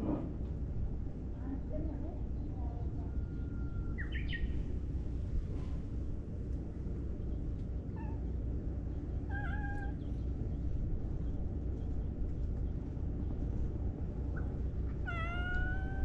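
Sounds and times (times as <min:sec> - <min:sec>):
steady low rumble: 0:00.0 - 0:16.0
cat meowing: 0:09.3 - 0:10.0, 0:15.0 - 0:16.0.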